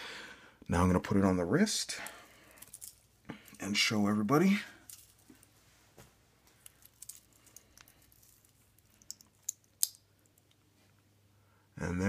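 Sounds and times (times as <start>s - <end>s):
metal watch bracelet clinking: 4.8s - 5.5s, 6.6s - 10.4s.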